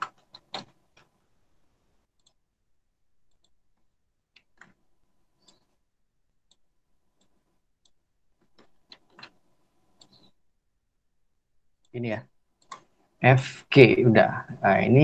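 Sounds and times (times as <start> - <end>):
computer mouse clicks: 0.0 - 1.2, 2.0 - 2.4, 3.2 - 3.6, 4.3 - 5.8, 6.4 - 10.4, 12.6 - 13.0.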